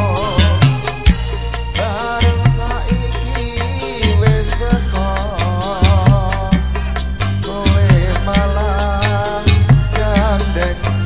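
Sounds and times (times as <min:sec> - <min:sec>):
gamelan band music: 0:00.0 - 0:11.0
man singing: 0:00.0 - 0:11.0.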